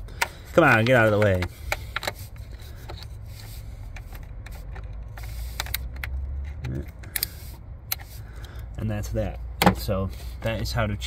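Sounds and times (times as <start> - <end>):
screwdriver clicks and scrapes: 0.2 - 8.2.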